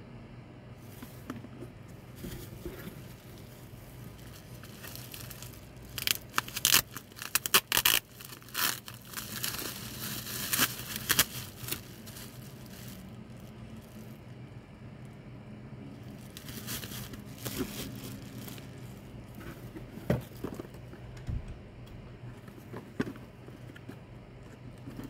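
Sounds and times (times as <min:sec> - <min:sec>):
bubble wrap crinkling and tearing: 0:02.1 - 0:14.4, 0:15.9 - 0:20.6.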